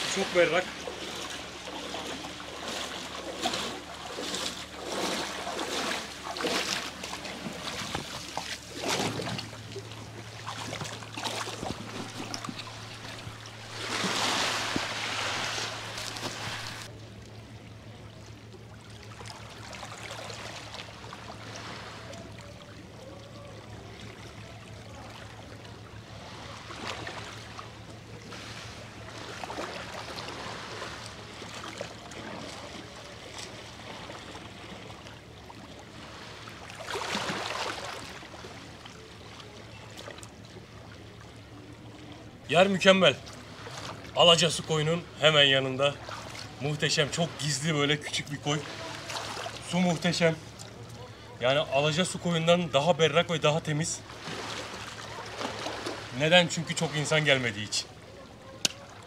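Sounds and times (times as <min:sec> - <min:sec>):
waves lapping on pebbly shore: 0:00.0 - 0:09.7, 0:10.4 - 0:16.9, 0:36.0 - 0:38.6, 0:45.6 - 0:50.4, 0:53.6 - 0:57.7
steady low hum: 0:00.0 - 0:56.6.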